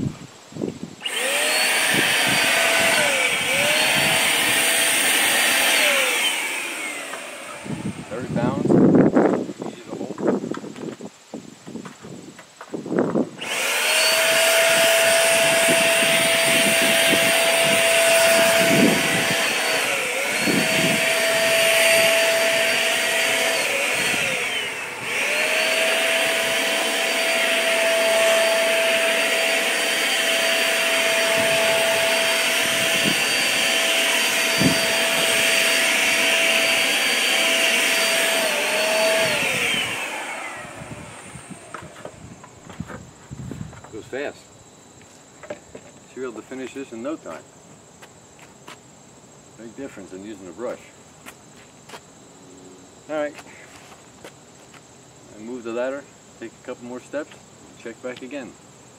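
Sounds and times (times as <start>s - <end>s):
paint sprayer motor whine: 0.7s - 11.1s, 11.8s - 44.0s.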